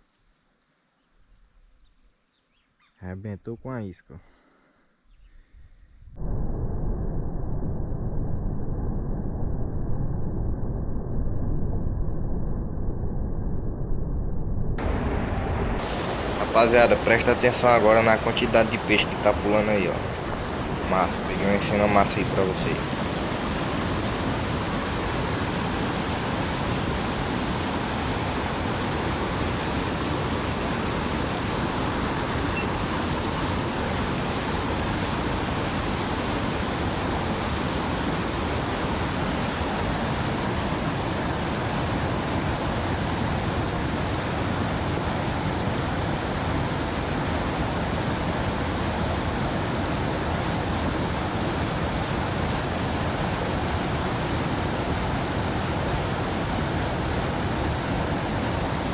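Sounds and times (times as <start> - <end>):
river water rushing: 14.8 - 58.9.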